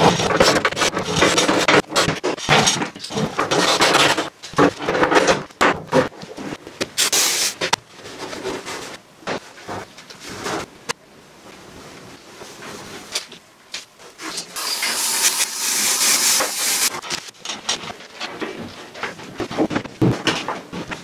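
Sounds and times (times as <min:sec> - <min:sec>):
aerosol spray can hissing: 0:14.6 - 0:16.9.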